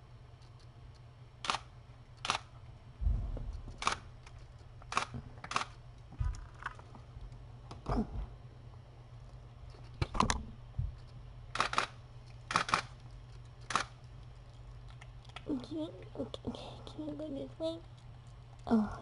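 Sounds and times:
camera shutter clicks: 0:01.4 - 0:02.5, 0:11.6 - 0:11.9, 0:12.5 - 0:12.9, 0:13.7 - 0:13.9
low thumps: 0:03.0 - 0:04.4.

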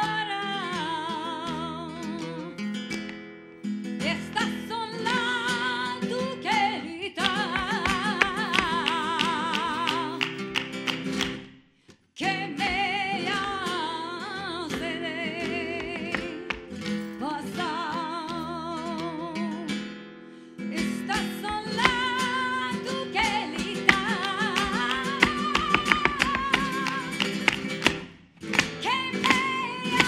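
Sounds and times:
flamenco guitar: 0:00.0 - 0:30.0
person singing with vibrato: 0:04.0 - 0:10.5, 0:12.2 - 0:19.8, 0:20.6 - 0:27.8, 0:28.6 - 0:30.0.

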